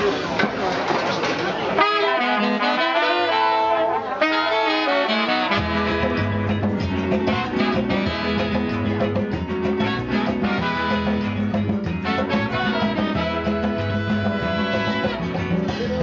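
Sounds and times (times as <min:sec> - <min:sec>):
calypso band playing: 0:00.0 - 0:16.0
saxophones and trumpets melody: 0:01.8 - 0:16.0
bass line: 0:02.4 - 0:16.0.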